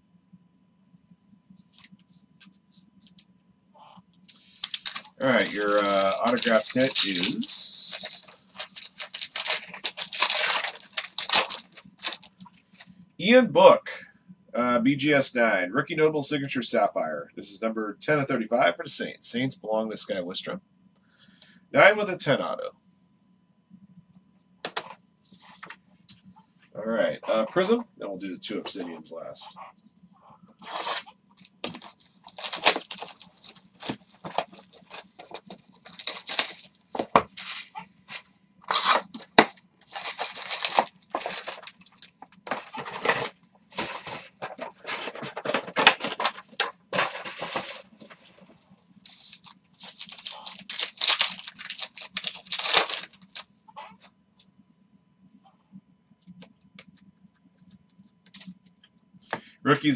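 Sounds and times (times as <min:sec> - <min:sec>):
card packs tearing and crinkling: 0:04.3 - 0:12.3, 0:30.6 - 0:37.8, 0:38.7 - 0:48.3, 0:49.1 - 0:53.4.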